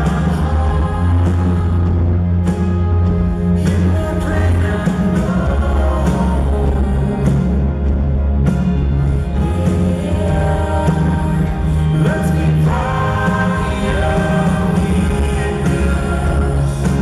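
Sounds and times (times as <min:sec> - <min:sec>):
deep bass: 0:00.0 - 0:17.0
drums: 0:00.0 - 0:17.0
keyboards: 0:00.0 - 0:17.0
live band music: 0:00.0 - 0:17.0.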